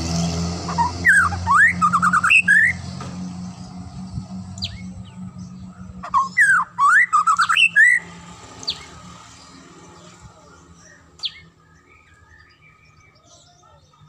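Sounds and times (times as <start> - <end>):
sharp high bird notes: 0.3 - 9.0
bird whistled song: 0.7 - 2.9, 4.6 - 8.9, 10.8 - 14.0.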